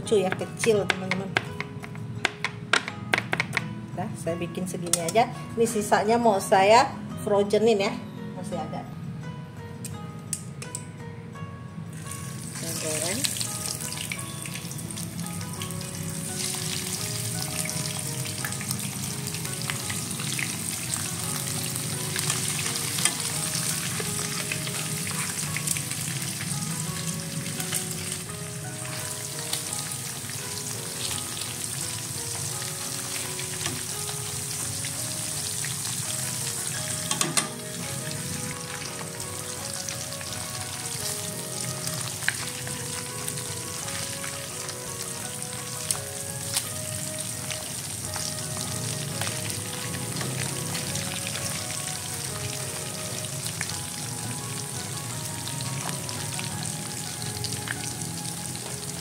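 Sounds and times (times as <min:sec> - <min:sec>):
meat sizzling in hot oil: 0:11.9 - 0:59.0.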